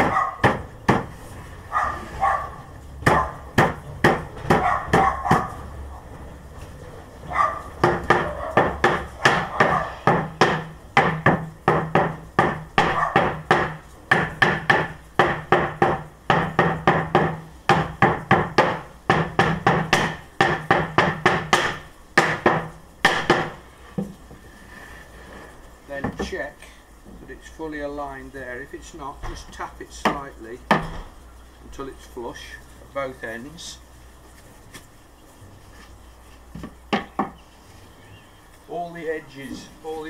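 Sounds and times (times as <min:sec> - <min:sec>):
rubber mallet knocking on plywood: 0:00.0 - 0:01.1, 0:03.0 - 0:05.4, 0:07.8 - 0:24.1, 0:36.5 - 0:37.4.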